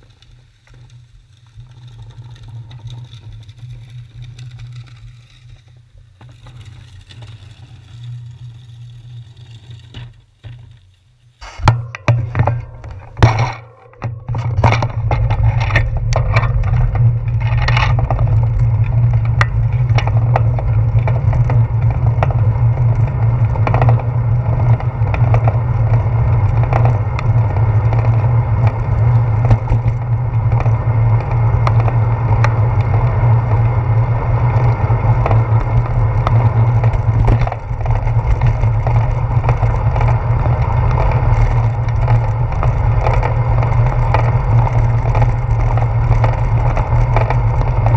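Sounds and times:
tyres on wet pavement: 0.2s - 47.9s
sharp rattling clicks and knocks: 11.4s - 21.6s, 35.3s - 39.8s
wind rumble: 11.4s - 47.9s.

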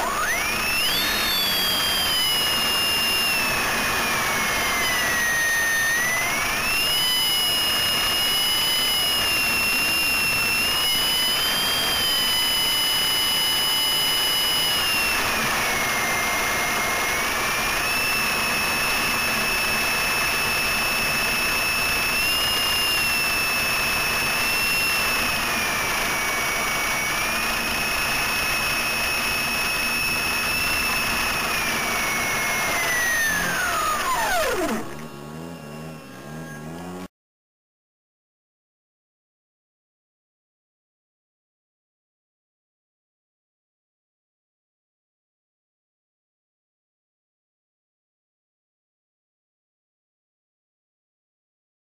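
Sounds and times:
model plane electric motor whining: 0.0s - 37.1s.

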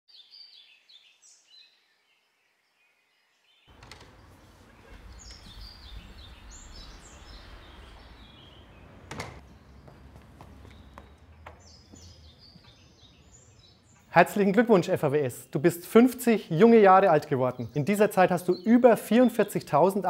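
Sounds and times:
small birds chirping: 0.1s - 20.0s
outdoor background hum: 3.7s - 14.1s
low rumble: 3.8s - 13.9s.

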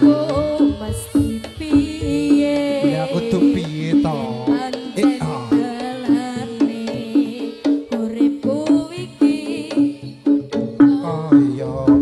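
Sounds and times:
hand drumming: 0.0s - 12.0s
person singing: 0.0s - 12.0s
repeating pitched note: 2.8s - 6.5s.

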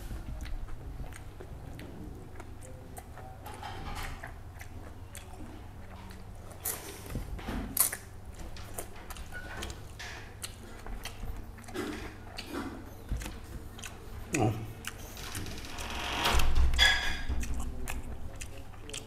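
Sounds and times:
man chewing: 0.0s - 15.5s, 16.6s - 19.0s
lip smacks: 4.0s - 15.3s.

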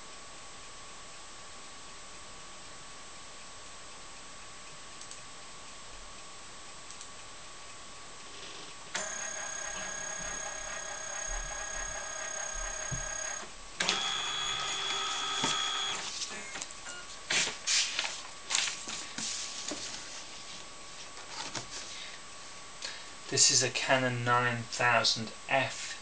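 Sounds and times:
scanner motor whining: 9.0s - 16.6s.

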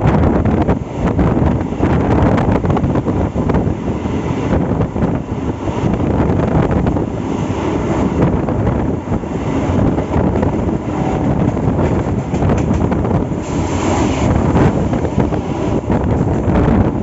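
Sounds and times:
train coaches rumbling on track: 0.0s - 17.0s
wind buffeting microphone: 0.0s - 17.0s.

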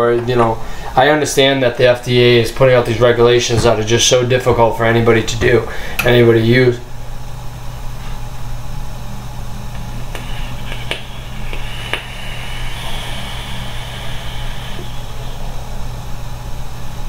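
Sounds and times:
low room hum: 0.0s - 17.0s
breathy exhale hiss: 9.8s - 16.4s
vape clicks: 10.1s - 12.2s.

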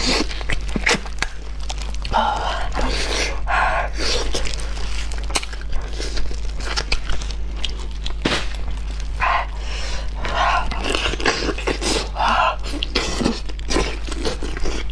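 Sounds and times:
plastic gloves crinkling: 0.0s - 14.9s
wet biting and tearing of meat: 4.0s - 14.9s.

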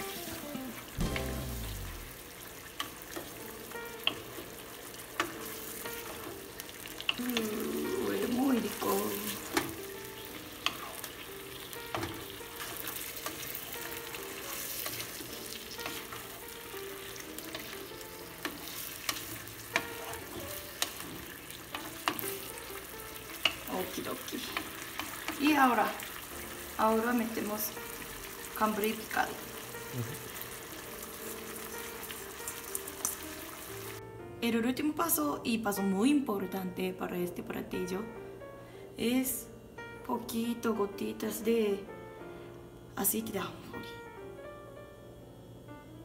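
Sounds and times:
shrimp sizzling in frying pan: 0.0s - 34.0s
spatula clacking and scraping pan: 9.2s - 15.2s, 18.4s - 22.5s.

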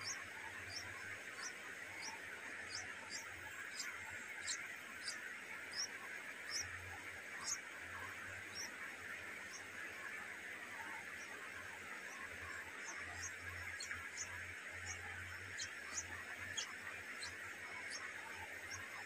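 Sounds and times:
bird nestlings chirping: 0.0s - 6.7s, 12.0s - 19.0s
steady high hiss: 0.0s - 19.0s.

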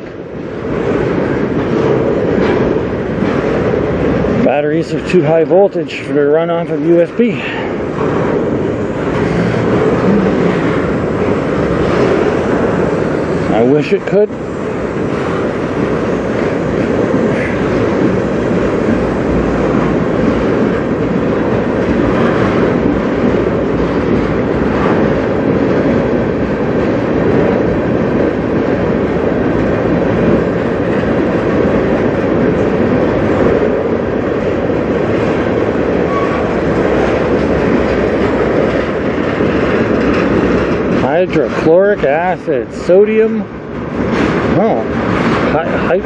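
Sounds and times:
train wheels rumbling on rails: 0.0s - 46.0s.

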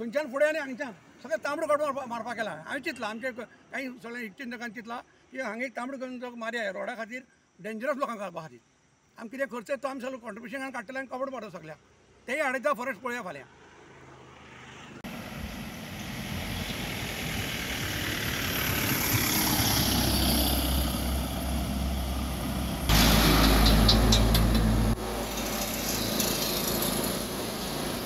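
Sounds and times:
lorry passing: 13.6s - 28.0s
motorcycle: 13.6s - 28.0s
pickup truck passing: 13.6s - 28.0s
low engine rumble: 15.1s - 28.0s.

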